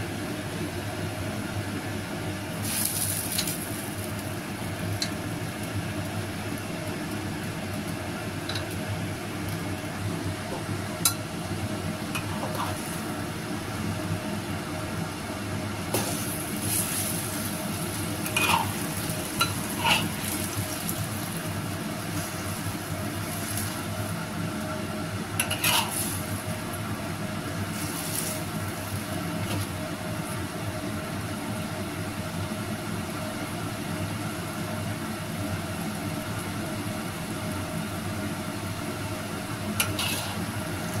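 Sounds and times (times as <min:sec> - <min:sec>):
noodles sizzling: 0:02.5 - 0:14.3, 0:15.7 - 0:30.6, 0:39.2 - 0:41.0.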